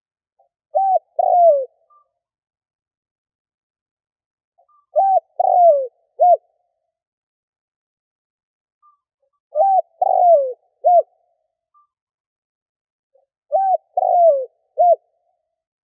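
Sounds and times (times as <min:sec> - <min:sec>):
dove cooing: 0:00.7 - 0:02.0, 0:04.9 - 0:06.5, 0:09.5 - 0:11.2, 0:13.5 - 0:15.2.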